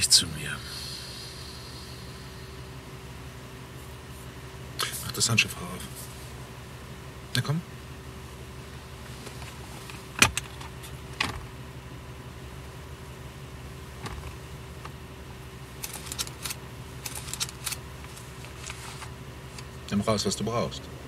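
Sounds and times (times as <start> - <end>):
car interior hum: 0.0 - 21.0
glove compartment latch clicking: 9.3 - 11.4.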